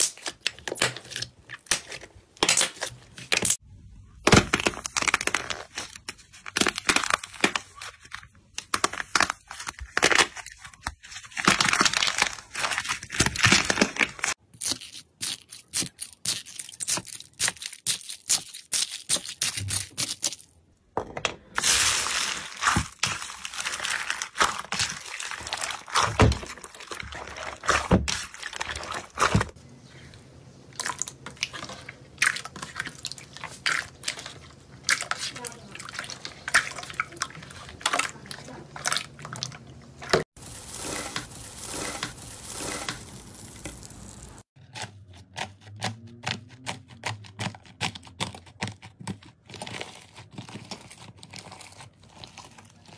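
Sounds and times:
foam beads rustling in bowl: 0:40.4 - 0:44.5.

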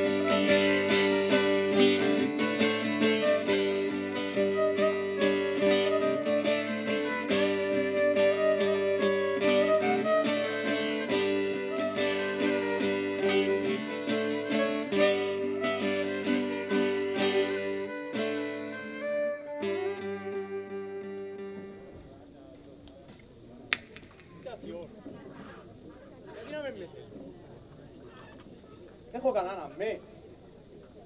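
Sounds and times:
plucked lute rhythm: 0:00.0 - 0:22.1
violin melody: 0:00.0 - 0:22.1.

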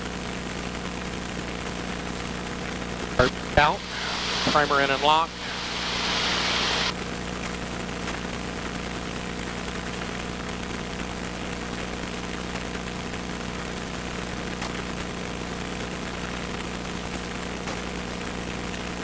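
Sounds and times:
airplane engine droning: 0:03.2 - 0:06.9
loud hiss: 0:03.2 - 0:06.9.

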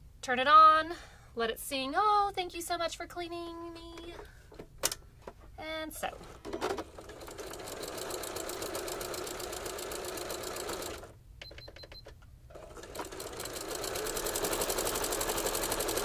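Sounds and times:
sewing machine stitching: 0:06.4 - 0:11.1, 0:12.5 - 0:16.0.

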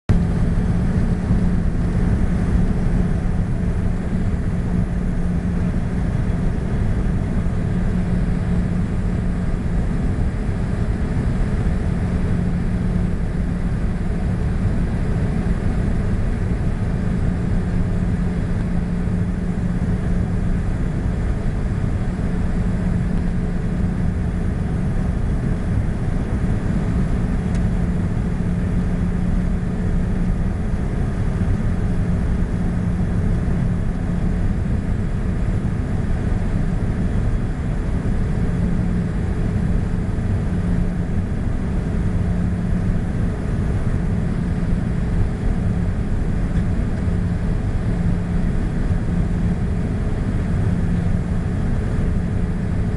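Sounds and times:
jet engines humming: 0:00.1 - 0:52.9
rush of airflow: 0:00.1 - 0:52.9.

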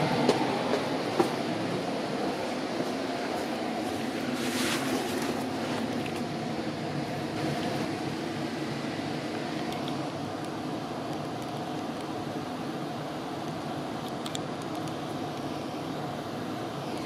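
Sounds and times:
train cabin rumble: 0:00.0 - 0:08.5.

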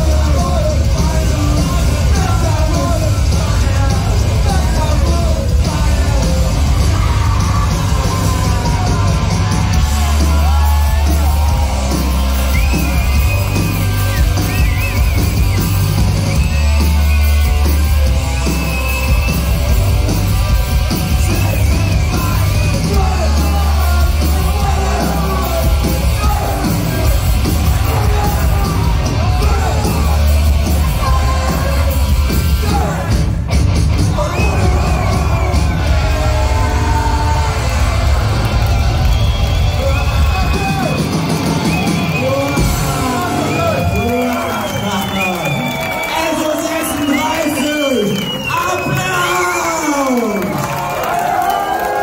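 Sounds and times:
punk band playing live: 0:00.0 - 0:51.8.

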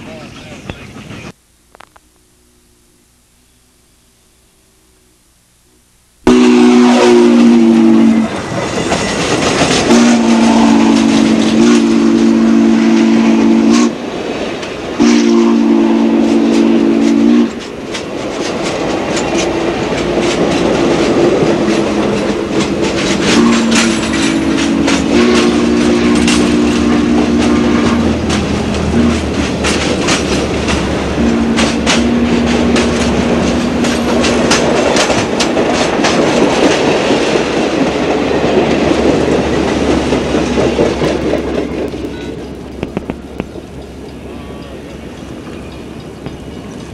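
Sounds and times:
steam chime whistle blasts: 0:06.3 - 0:08.4
train wheels clacking over rail joints: 0:07.3 - 0:46.9.

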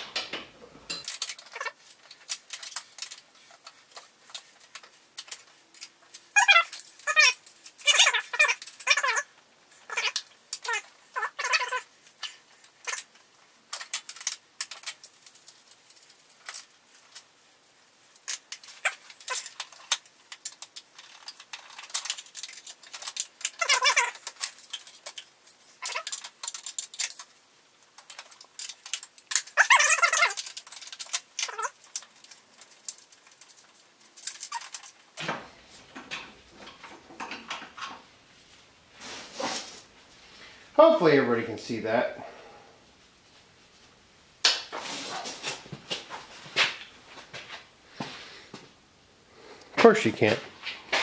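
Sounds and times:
wrenches clinking on bolts: 0:00.1 - 0:03.2
sped-up squeaky voice: 0:06.4 - 0:09.3, 0:09.9 - 0:11.9.

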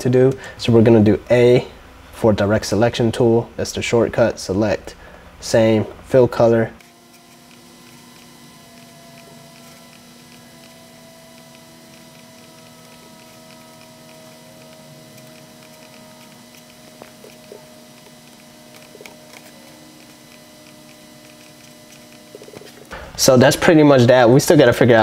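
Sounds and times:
steady low hum: 0:00.0 - 0:25.0
computer mouse clicks: 0:07.2 - 0:22.8.

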